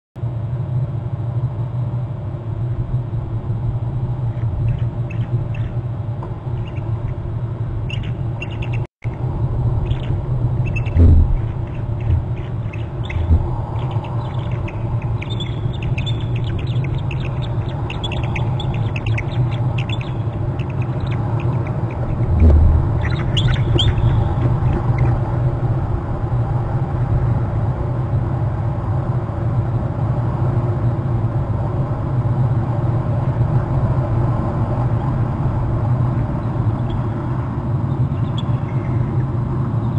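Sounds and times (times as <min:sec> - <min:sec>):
steady low rumble: 0:00.2 - 0:39.9
eagles high piping calls: 0:07.9 - 0:08.9, 0:09.8 - 0:25.2.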